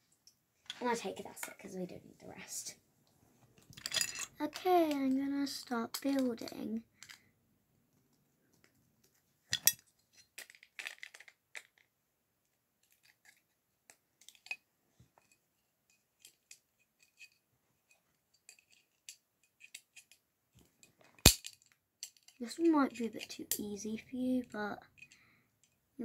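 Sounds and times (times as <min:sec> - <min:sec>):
plastic bricks clicking: 0:10.4 - 0:11.9.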